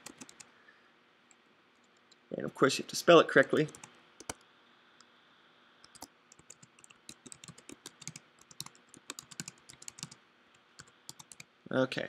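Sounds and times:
keyboard typing: 0.0s - 0.5s, 3.6s - 4.4s, 5.8s - 10.2s, 10.8s - 11.5s.

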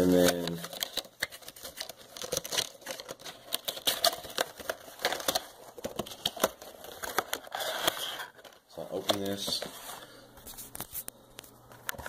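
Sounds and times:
cardboard box packaging handled: 0.1s - 10.9s.

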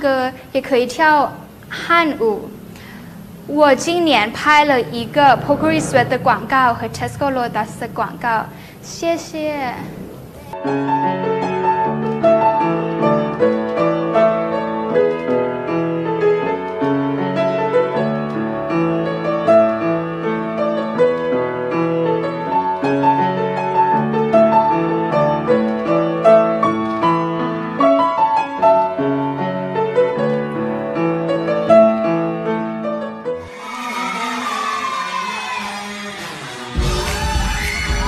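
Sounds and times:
upright piano playing: 3.5s - 33.8s.

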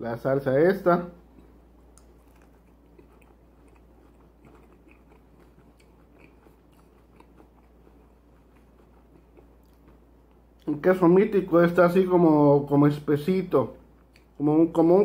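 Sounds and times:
wet mouth clicks: 1.3s - 10.7s, 14.0s - 14.4s
close-up chewing crunches: 1.3s - 10.8s.

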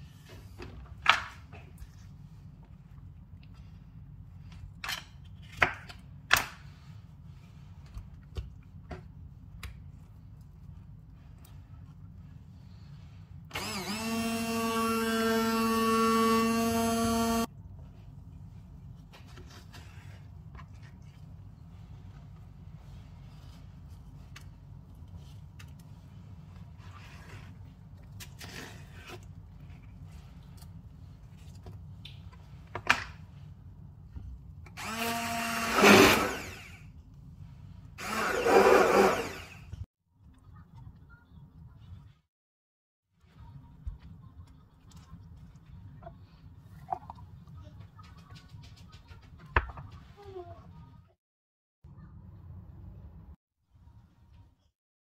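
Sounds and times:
immersion blender whine: 13.5s - 17.5s, 34.8s - 36.9s, 38.0s - 39.8s
kitchen appliance motor running: 13.5s - 17.5s, 34.7s - 36.9s, 38.0s - 39.8s.

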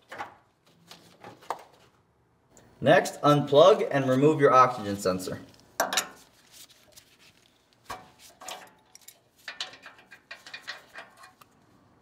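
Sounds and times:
wrench clicking and scraping on metal: 8.3s - 11.6s.

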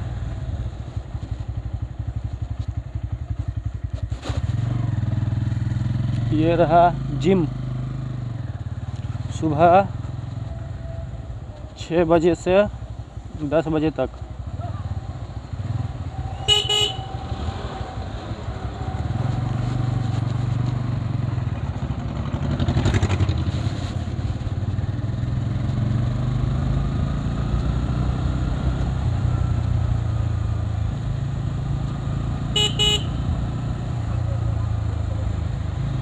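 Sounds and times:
motorcycle engine running: 0.0s - 36.0s
road noise: 0.0s - 36.0s
vehicle horn toot: 16.3s - 17.2s, 32.5s - 33.3s.

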